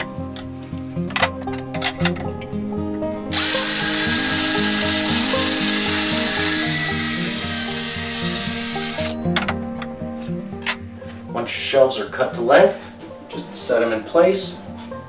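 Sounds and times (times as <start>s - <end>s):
background music: 0.0s - 15.0s
circular saw cutting board: 3.3s - 9.2s.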